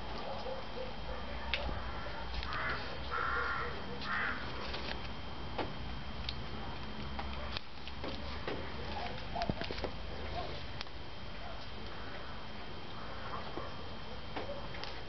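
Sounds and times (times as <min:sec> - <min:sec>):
outdoor background noise: 0:00.0 - 0:15.0
crow-like caws: 0:01.8 - 0:04.5.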